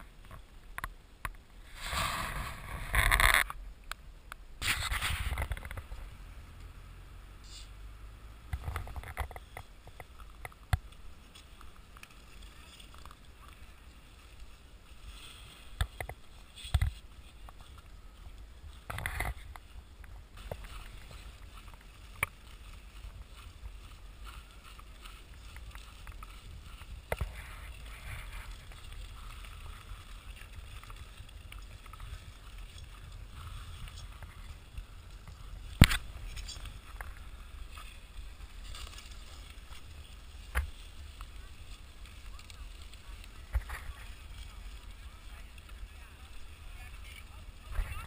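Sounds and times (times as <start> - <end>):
ice skates scraping on ice: 1.7 - 3.5, 4.6 - 5.9, 20.4 - 48.0
sharp clicks and knocks on ice: 8.5 - 13.7, 15.6 - 48.0.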